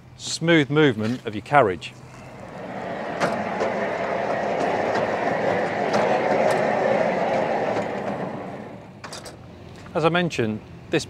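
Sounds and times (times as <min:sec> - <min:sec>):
carriage wheels rolling on rails: 0:02.2 - 0:09.4.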